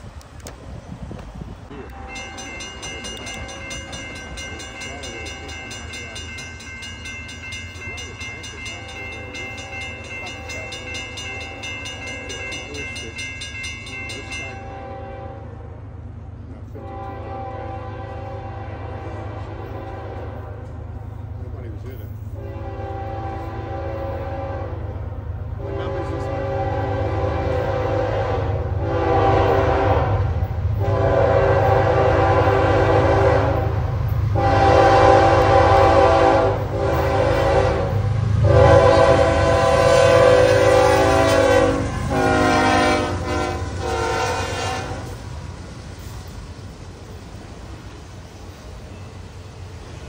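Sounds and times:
locomotive engine rumble: 0.0s - 50.0s
train air horn blasts: 14.5s - 15.8s, 16.7s - 21.2s, 22.3s - 45.2s.

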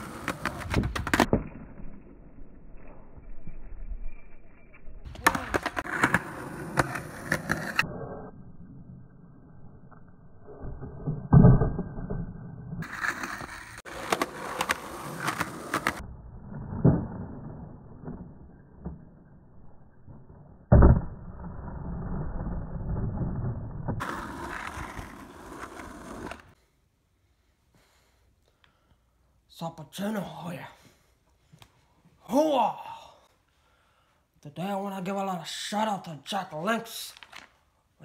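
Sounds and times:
skateboard wheels rolling on asphalt: 0.0s - 26.6s.

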